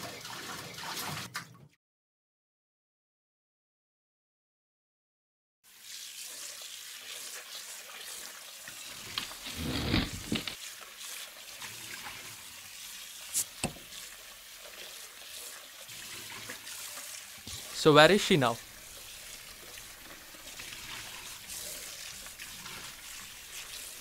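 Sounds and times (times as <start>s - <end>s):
drink pouring: 8.7s - 10.6s.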